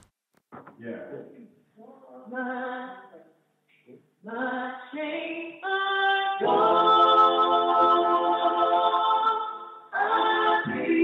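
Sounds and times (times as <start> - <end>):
woman singing a hymn: 2.3 - 3.1, 4.2 - 11.0.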